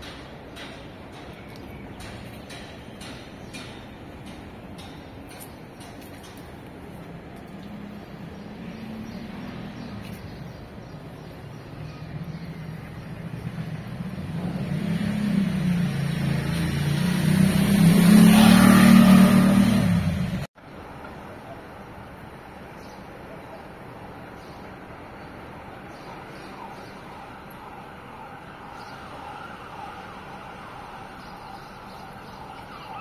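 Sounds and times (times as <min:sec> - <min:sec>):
car driving past: 0:13.0 - 0:20.5.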